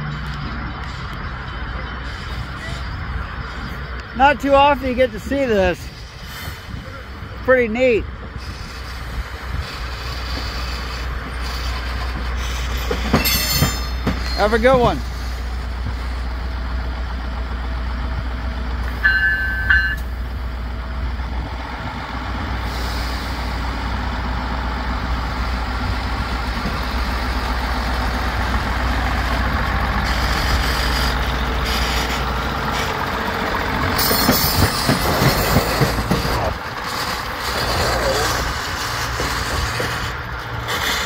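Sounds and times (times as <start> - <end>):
diesel railcar rolling past: 0.0 - 41.0
short high beep: 19.0 - 20.1.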